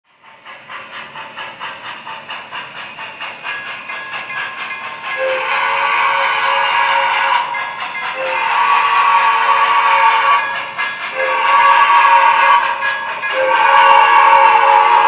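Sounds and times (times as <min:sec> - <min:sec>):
model train steam chuffing: 0:00.1 - 0:15.0
steam hiss: 0:00.2 - 0:15.0
multi-tone steam whistle: 0:05.0 - 0:15.0.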